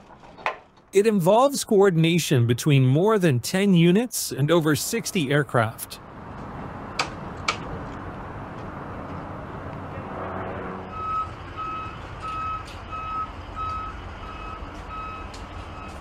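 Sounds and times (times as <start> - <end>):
low engine rumble: 5.3 - 16.0
reversing alarm beeps: 10.9 - 16.0.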